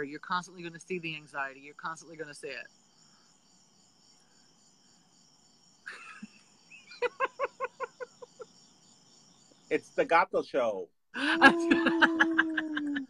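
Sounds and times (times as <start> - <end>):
crickets chirping: 0.0 - 13.0
high-pitched laughter: 5.9 - 8.4, 11.2 - 13.0.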